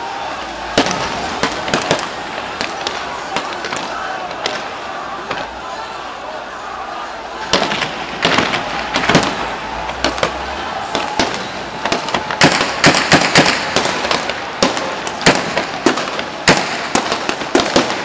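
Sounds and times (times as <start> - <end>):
gunshots: 0.2 - 4.7, 7.4 - 18.0
background din: 6.9 - 13.9.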